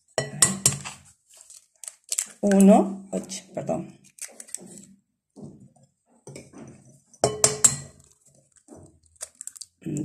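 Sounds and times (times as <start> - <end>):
eggshell crackling: 1.4 - 2.7, 4.0 - 4.8, 7.9 - 10.0
egg clinking against glass bowl: 7.2 - 8.0.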